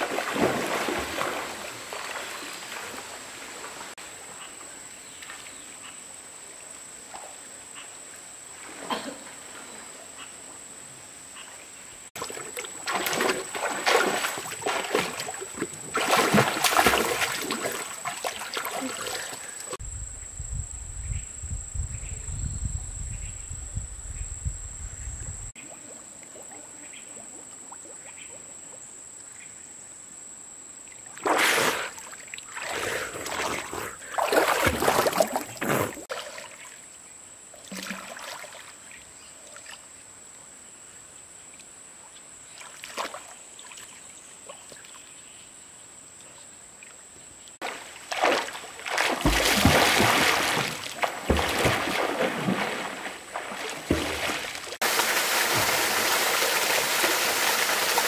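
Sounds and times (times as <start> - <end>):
water lapping: 0.0 - 4.0, 12.2 - 19.8, 31.2 - 36.8, 47.6 - 58.0
swimmer splashing in water: 47.6 - 58.0.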